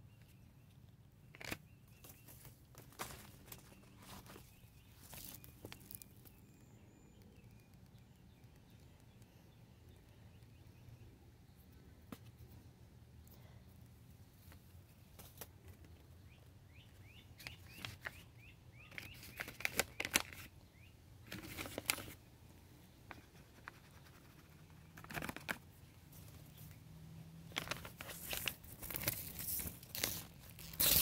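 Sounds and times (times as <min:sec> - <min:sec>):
paper packets rustling: 0:01.3 - 0:06.4, 0:18.9 - 0:20.5, 0:21.2 - 0:22.2, 0:24.9 - 0:26.4, 0:27.5 - 0:31.0
bird chirps: 0:03.4 - 0:11.8, 0:16.0 - 0:21.0.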